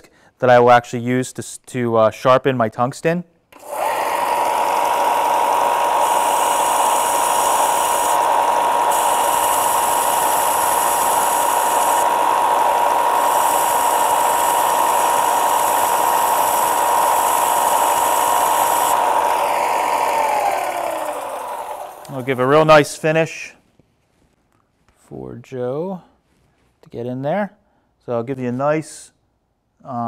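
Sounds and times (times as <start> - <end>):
electrode grinding against belt: 3.6 - 22.8
belt sander humming: 3.6 - 23.0.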